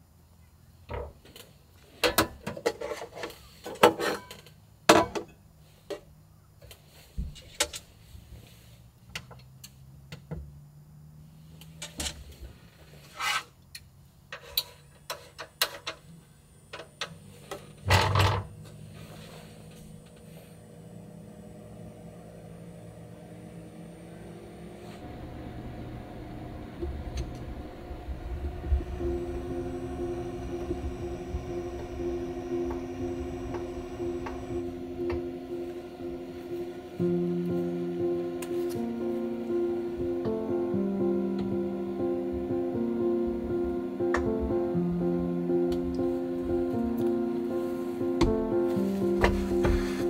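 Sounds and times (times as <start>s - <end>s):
low steady hum: 17.4s - 50.0s.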